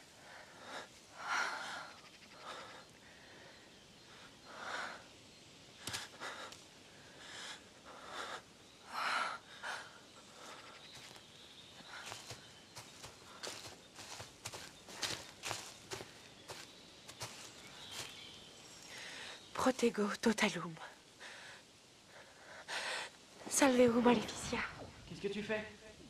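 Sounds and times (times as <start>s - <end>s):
footsteps in dry leaves: 10.9s - 18.9s.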